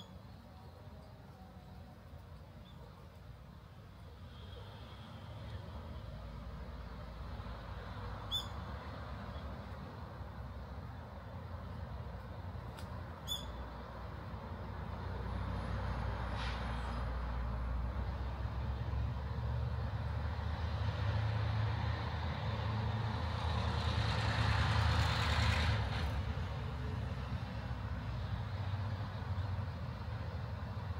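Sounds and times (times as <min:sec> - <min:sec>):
vehicle passing by: 0:14.2 - 0:30.9.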